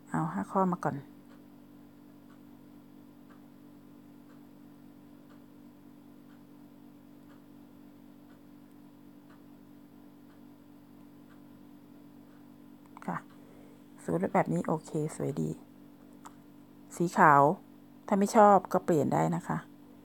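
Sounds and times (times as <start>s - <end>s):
steady low hum: 0.0s - 20.0s
faint ticking: 0.1s - 17.7s.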